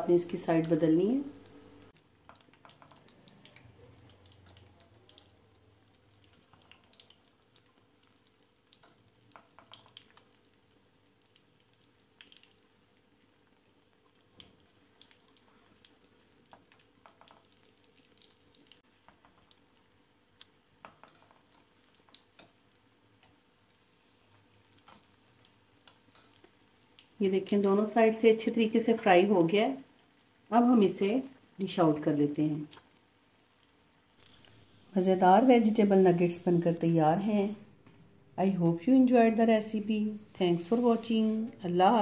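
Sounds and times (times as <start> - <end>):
food sizzling in oil: 0.0 - 31.6.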